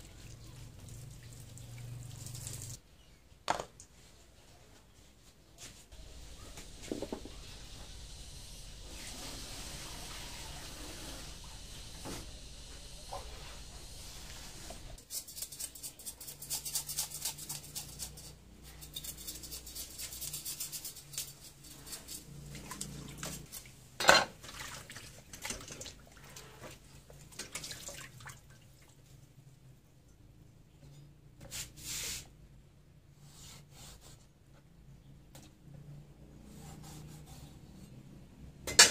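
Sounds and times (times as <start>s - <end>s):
water splashing and dripping: 0.0s - 2.8s, 24.4s - 26.5s, 27.2s - 29.0s
hands washing fish in water: 24.4s - 28.9s.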